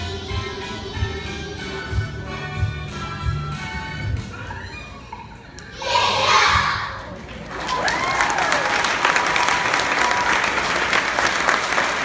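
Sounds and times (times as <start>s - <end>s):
children's choir singing: 0.0s - 2.3s
audience applause: 7.2s - 12.0s
audience cheering: 7.5s - 12.0s.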